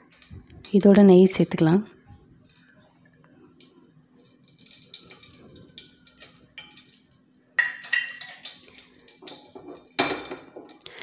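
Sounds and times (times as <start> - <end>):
ghee crackling in hot oil: 2.3 - 11.0.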